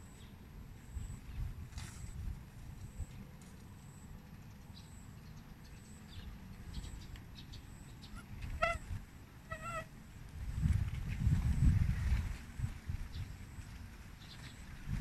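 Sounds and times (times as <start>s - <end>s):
faint high chirps: 0.0s - 2.2s, 2.8s - 9.9s
animal calls: 7.7s - 9.9s.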